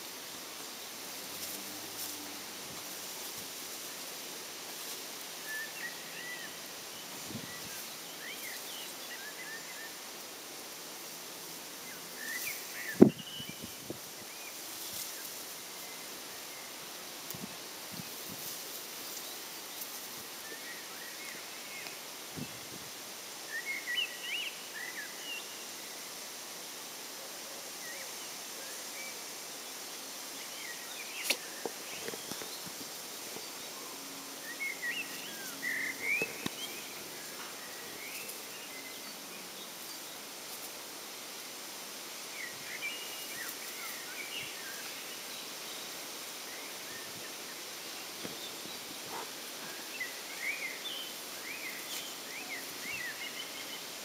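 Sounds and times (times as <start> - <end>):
steady hiss: 0.0 - 54.0
small birds chirping: 11.8 - 22.7, 29.8 - 40.8, 42.3 - 54.0
sharp click: 31.2 - 31.4.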